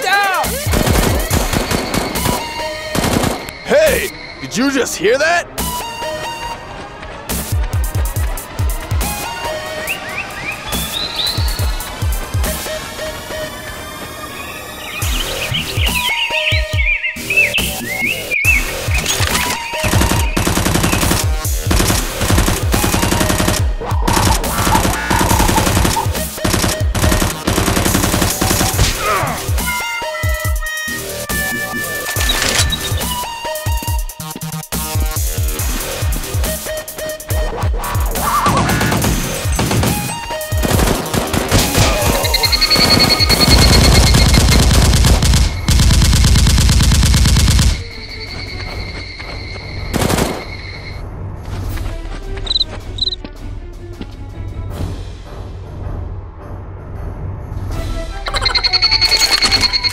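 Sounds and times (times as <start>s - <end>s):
background music: 0.0s - 59.9s
machine-gun fire bursts: 0.7s - 3.4s, 19.8s - 29.0s, 38.8s - 47.8s
electronic music with deep beat: 32.8s - 39.3s.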